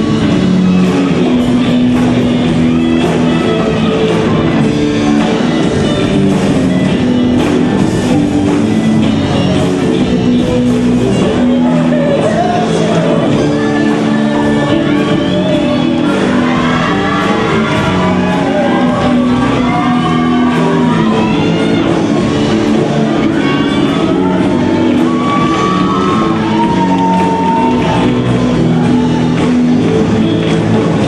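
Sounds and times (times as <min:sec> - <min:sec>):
electric guitar: 0:00.0 - 0:31.0
live rock band playing: 0:00.0 - 0:31.0
person singing: 0:09.3 - 0:31.0.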